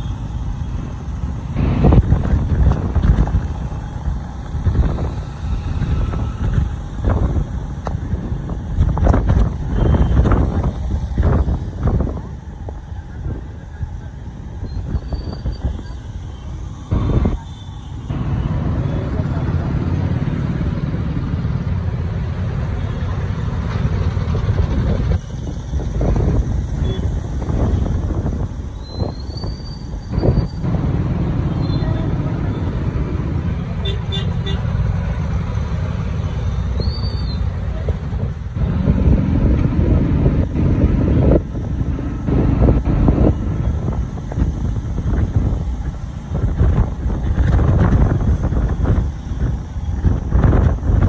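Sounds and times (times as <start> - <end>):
road traffic noise: 0.0 - 51.0
wind buffeting microphone: 1.6 - 15.9, 24.0 - 31.6, 37.7 - 51.0.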